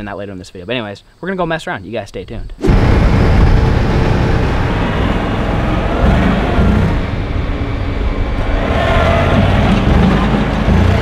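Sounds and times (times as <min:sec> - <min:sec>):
tractor diesel engine running: 0:02.7 - 0:11.0.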